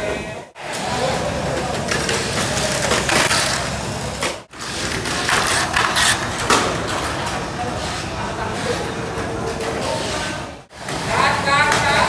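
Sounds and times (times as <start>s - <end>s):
toy cars rattling on plastic track: 1.7s - 3.7s.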